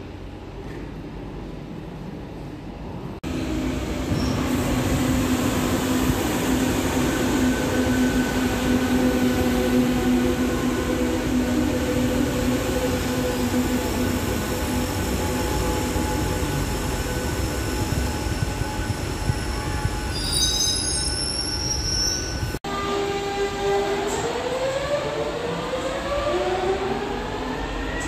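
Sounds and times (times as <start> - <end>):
train wheels rumbling on rail: 1.1 - 22.6
train whine: 3.2 - 28.0.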